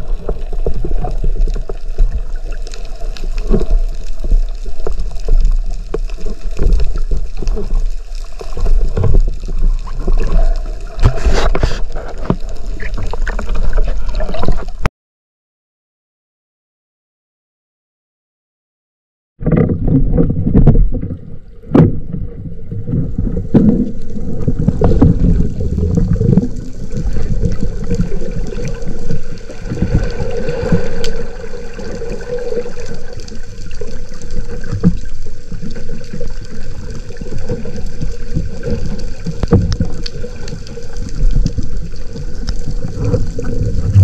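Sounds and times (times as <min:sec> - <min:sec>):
underwater rush and gurgle: 0:00.0 - 0:14.9, 0:19.4 - 0:44.0.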